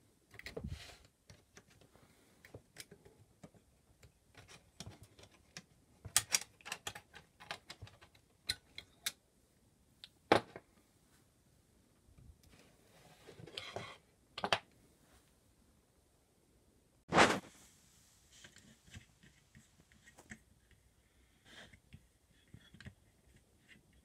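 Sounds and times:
small mechanism clicks and knocks: 0:02.7 - 0:09.2.

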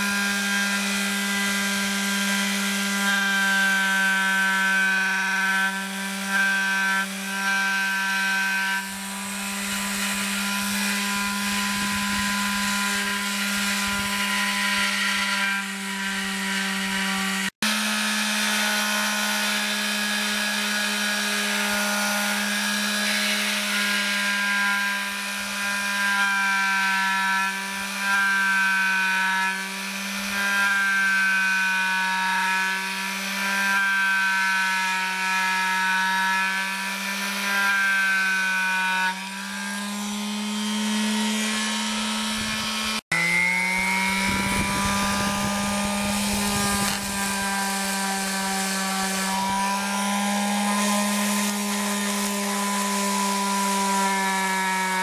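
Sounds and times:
electric sander motor hum: 0:00.0 - 0:55.0.

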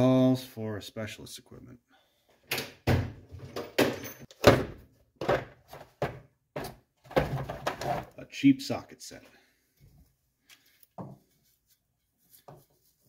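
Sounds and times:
plastic case knocks and clunks: 0:02.8 - 0:08.0.

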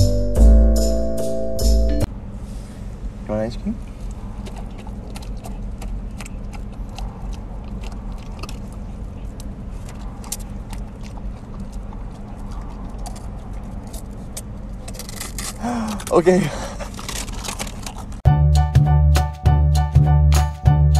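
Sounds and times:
car hum: 0:00.0 - 0:18.3
dog licking wet smacks: 0:04.4 - 0:13.2.

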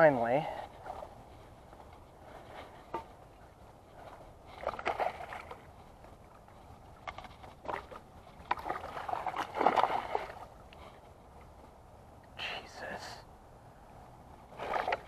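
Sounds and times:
fish thrashing water splashes: 0:04.6 - 0:05.6, 0:07.6 - 0:10.5, 0:14.5 - 0:15.0.

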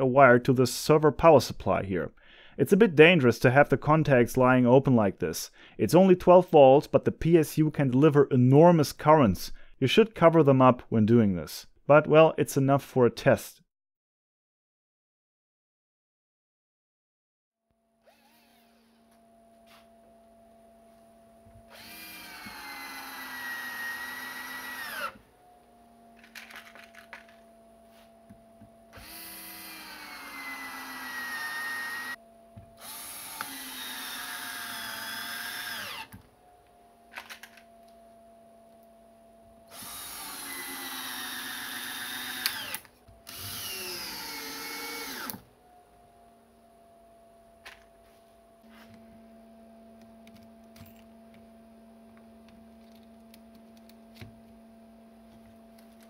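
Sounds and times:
drill drilling into wood: 0:18.0 - 0:19.1, 0:21.7 - 0:25.3, 0:28.9 - 0:32.2, 0:32.8 - 0:36.2, 0:39.7 - 0:45.5.

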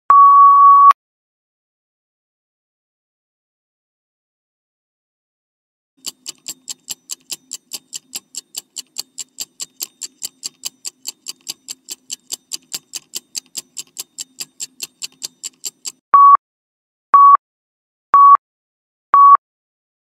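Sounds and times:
clock-like ticking: 0:06.0 - 0:16.0.

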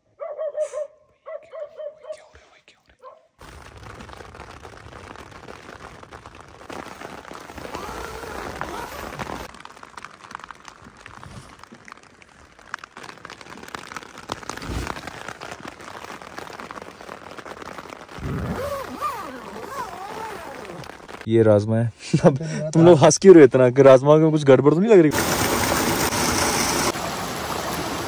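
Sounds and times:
rain drops ticking on surface: 0:03.4 - 0:21.3, 0:25.1 - 0:28.0.

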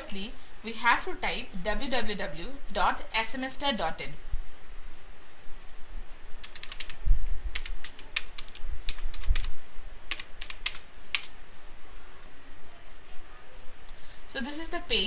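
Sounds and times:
keyboard keys clicking: 0:06.4 - 0:09.5, 0:10.1 - 0:11.3.

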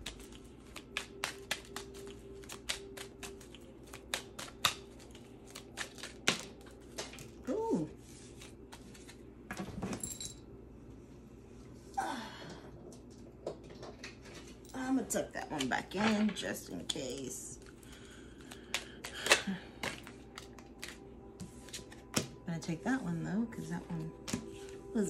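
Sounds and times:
cards being shuffled: 0:00.0 - 0:09.3, 0:18.3 - 0:22.3.

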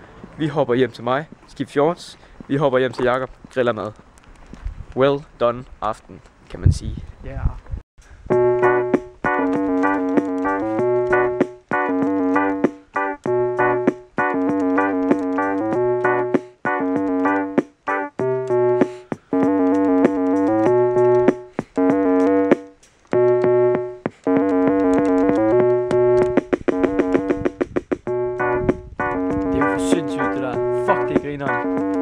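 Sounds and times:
steady bass note: 0:08.3 - 0:11.4, 0:13.3 - 0:13.9, 0:18.2 - 0:22.6, 0:23.2 - 0:32.0
electronic keyboard riff: 0:08.3 - 0:32.0
quick clicks in a beat: 0:08.3 - 0:32.0.

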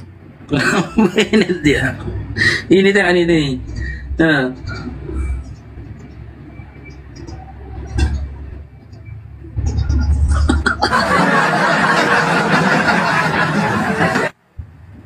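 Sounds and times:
low rumble: 0:00.0 - 0:15.0
crowd laughing: 0:00.6 - 0:01.8, 0:10.0 - 0:14.4.

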